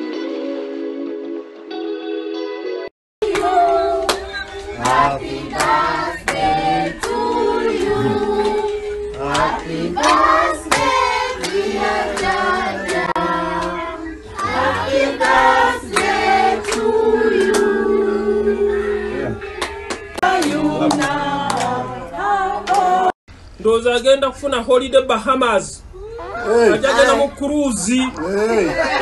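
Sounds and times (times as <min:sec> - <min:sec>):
people clapping: 0:03.2 - 0:18.0, 0:19.4 - 0:23.2
group of people singing: 0:03.2 - 0:23.2.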